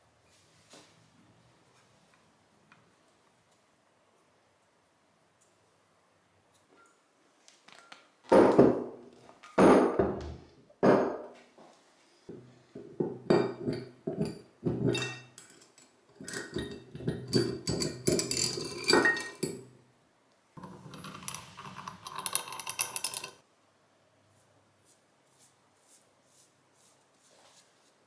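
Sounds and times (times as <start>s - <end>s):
vise screw rattling metallically: 14.9s - 19.6s, 20.6s - 23.4s.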